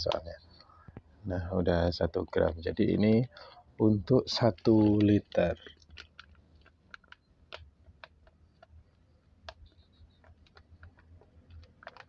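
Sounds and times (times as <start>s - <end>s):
light clicks and taps: 0.0s - 1.1s, 4.2s - 12.0s
faint steady low hum: 0.0s - 12.0s.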